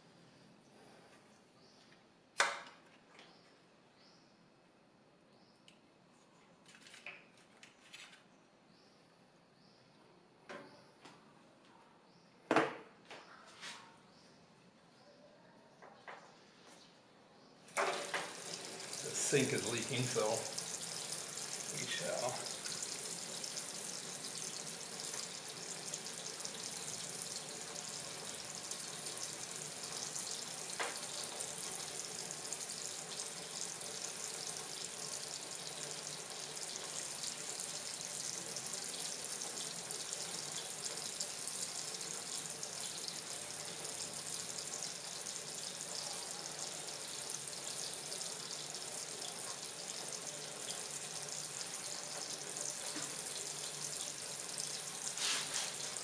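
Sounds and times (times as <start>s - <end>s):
tap water splashing into sink: 17.7s - 32.2s, 48.1s - 54.2s.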